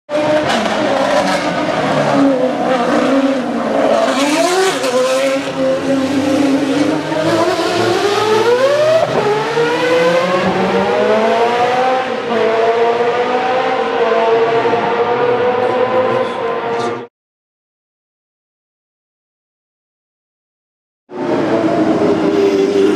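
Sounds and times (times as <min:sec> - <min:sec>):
racing car engine high revs: 0:00.1 - 0:17.1.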